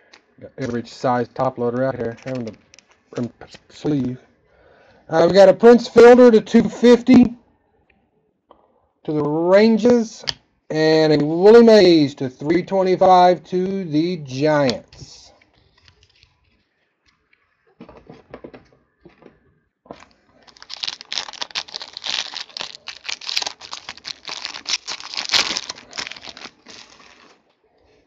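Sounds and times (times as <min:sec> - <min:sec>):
plastic wrapping crinkling: 0:01.4 - 0:03.5, 0:19.9 - 0:27.6.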